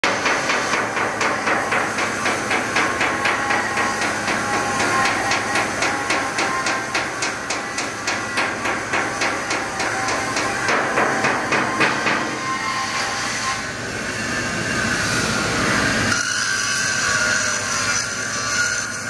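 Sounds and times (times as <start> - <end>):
rhythmic metallic knocking: 0.0 - 12.6
machinery hum: 0.1 - 16.1.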